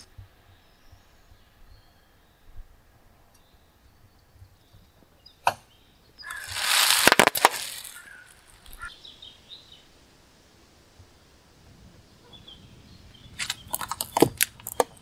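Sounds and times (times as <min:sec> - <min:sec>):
plastic packet snapping: 0:06.3 - 0:08.1, 0:13.4 - 0:15.0
plastic crackling under tyre: 0:06.3 - 0:08.8, 0:13.3 - 0:15.0.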